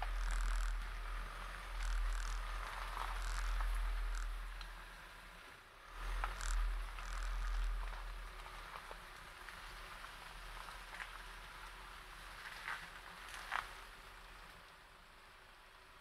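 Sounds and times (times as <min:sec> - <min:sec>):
low rumble: 0:00.0 - 0:09.0
gravel ticking under tyres: 0:00.0 - 0:16.0.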